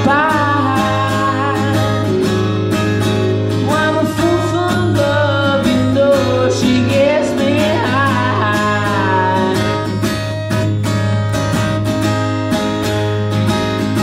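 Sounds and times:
man singing: 0.0 - 2.1, 3.6 - 10.0
strummed acoustic guitar: 0.0 - 14.0.

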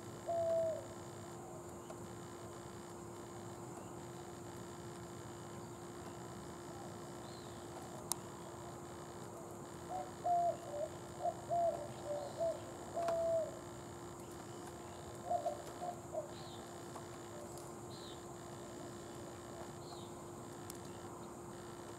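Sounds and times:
owl calling: 0.0 - 2.0, 9.3 - 13.6, 14.3 - 20.2.

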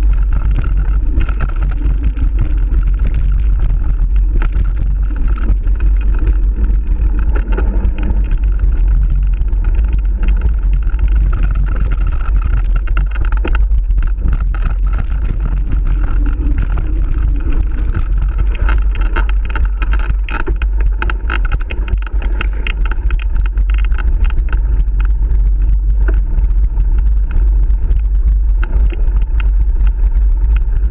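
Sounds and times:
bike rattling over bumps: 0.0 - 30.9
wind buffeting microphone: 0.0 - 30.9.

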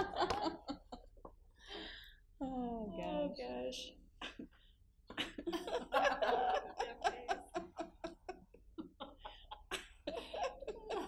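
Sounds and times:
people laughing: 0.0 - 1.2, 5.1 - 11.0.

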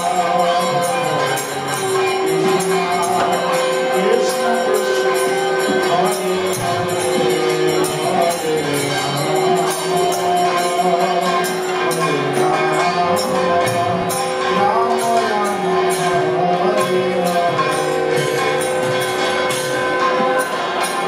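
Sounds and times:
small hand cymbals: 0.0 - 21.0.

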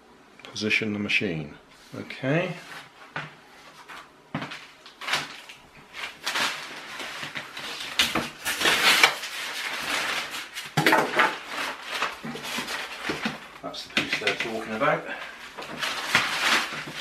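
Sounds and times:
plastic bag crinkling: 3.8 - 17.0.

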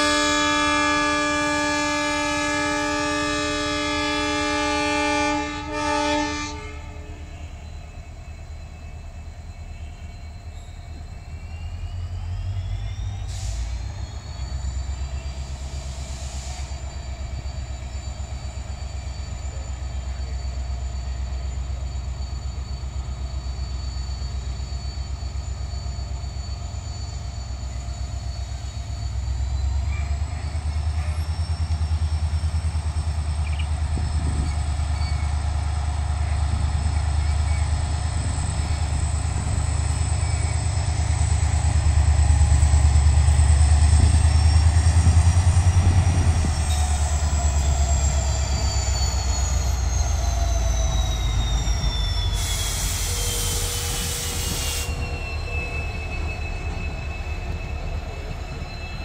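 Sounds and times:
diesel locomotive engine rumble: 0.0 - 59.0
hiss: 13.2 - 14.6, 15.4 - 17.6, 51.2 - 55.2.

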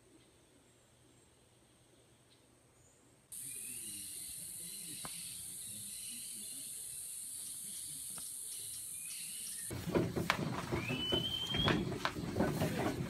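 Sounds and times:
faint bird chirps: 0.0 - 9.7
insect chorus drone: 3.3 - 9.7
loud clattering: 9.7 - 13.0.

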